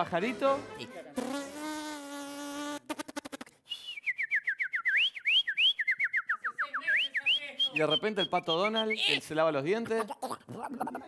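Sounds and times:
mouth clicks: 0:02.7 - 0:09.2
whistled bird chirps: 0:03.7 - 0:09.2.

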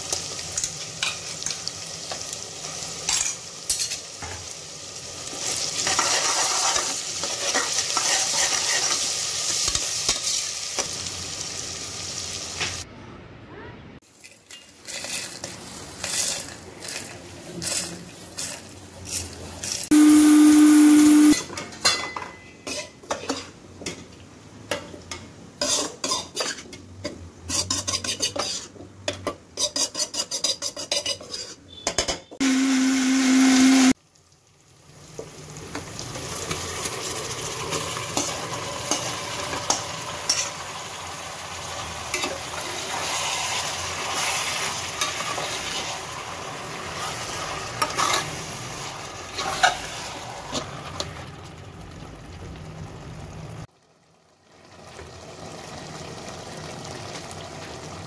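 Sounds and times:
chicken sizzling in a pot: 0:00.0 - 0:12.9, 0:14.0 - 0:58.0
spatula stirring: 0:05.8 - 0:09.1, 0:25.6 - 0:26.8, 0:27.5 - 0:31.6, 0:47.0 - 0:48.4
mixer grinder running: 0:32.4 - 0:33.9.

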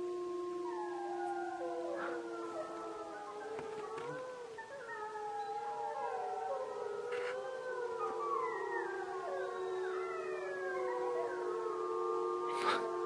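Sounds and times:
wolves howling: 0:00.0 - 0:13.0
wolves yipping: 0:05.4 - 0:07.4.

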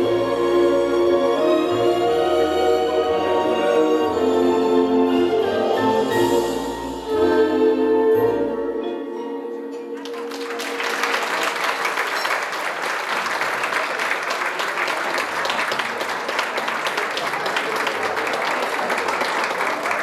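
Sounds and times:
audience applauding: 0:10.0 - 0:20.0.

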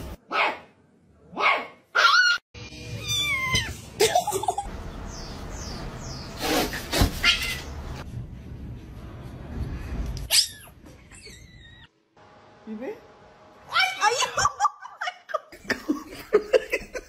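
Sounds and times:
cats meowing: 0:02.9 - 0:03.9, 0:07.2 - 0:07.7
faint high squeaks: 0:10.3 - 0:11.9.

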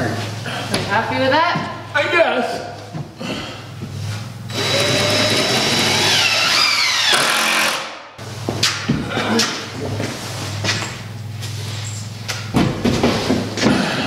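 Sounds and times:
power drill whining into wood: 0:04.5 - 0:07.9.

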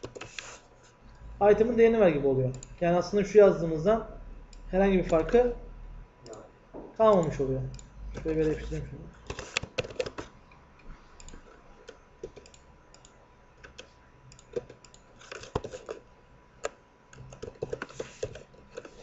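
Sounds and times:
keyboard typing: 0:00.0 - 0:00.6, 0:07.0 - 0:10.3, 0:11.2 - 0:16.0, 0:16.6 - 0:19.0.

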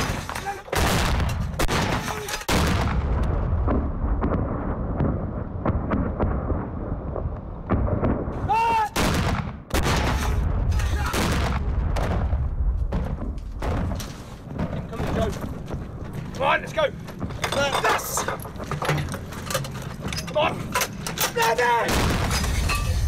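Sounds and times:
gunshots and mortar blasts: 0:00.0 - 0:18.6, 0:21.8 - 0:23.0
person shouting: 0:08.4 - 0:09.0.

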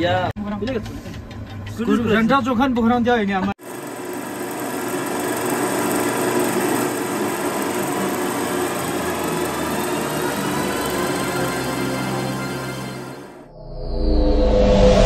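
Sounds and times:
film projector whirring: 0:03.6 - 0:13.5.

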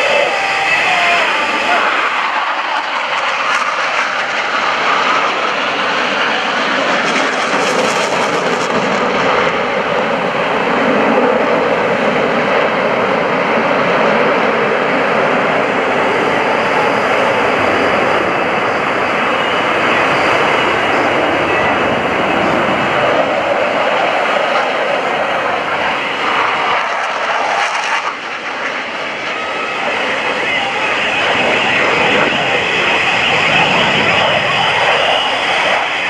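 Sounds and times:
jet engines roaring: 0:00.0 - 0:36.0.

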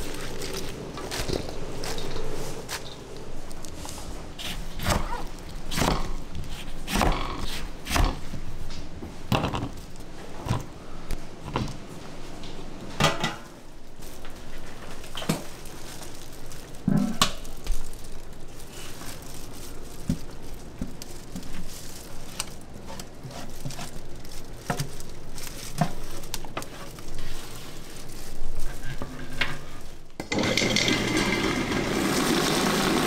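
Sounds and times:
metal bowls and utensils clinking: 0:13.0 - 0:13.6, 0:28.6 - 0:31.8.

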